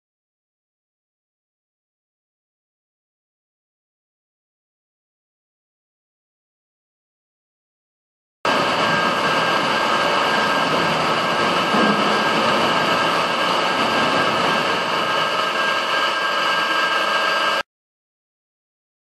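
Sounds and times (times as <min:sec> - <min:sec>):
pump humming: 0:08.5 - 0:17.6
water rushing along channel: 0:08.5 - 0:17.6.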